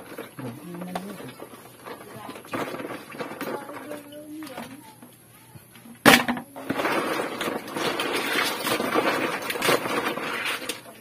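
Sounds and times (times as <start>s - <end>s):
shellfish scraping and clicking: 6.6s - 11.0s.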